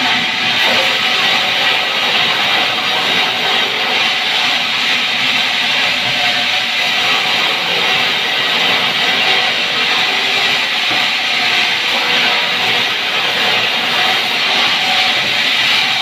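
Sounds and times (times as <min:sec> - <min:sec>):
band saw cutting log: 0:00.0 - 0:16.0.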